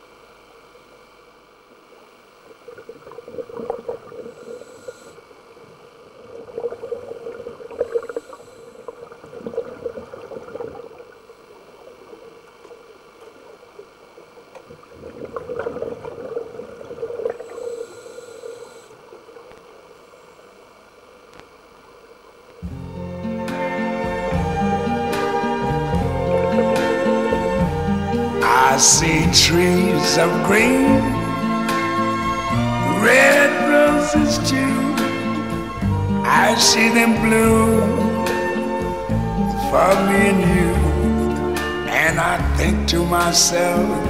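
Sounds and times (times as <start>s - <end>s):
underwater bubbles gurgling: 2.0s - 20.0s.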